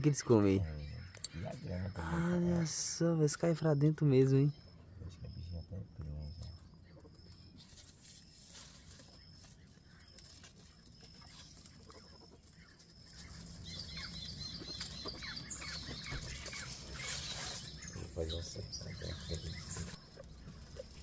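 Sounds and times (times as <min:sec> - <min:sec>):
bird chirping: 0:00.0 - 0:21.0
guinea pigs rustling and chewing: 0:06.2 - 0:21.0.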